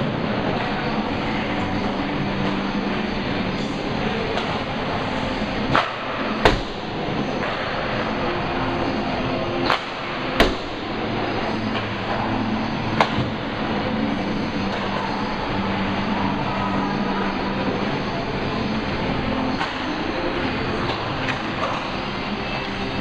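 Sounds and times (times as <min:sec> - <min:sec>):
hockey sticks cracking on puck: 0:09.6 - 0:10.2.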